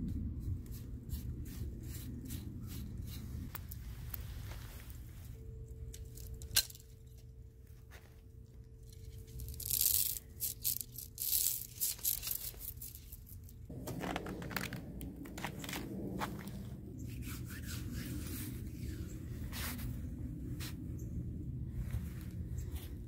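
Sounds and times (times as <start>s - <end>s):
soft rustle: 2.7s - 6.4s, 7.0s - 23.0s
ice crunching and crackling: 9.0s - 16.8s.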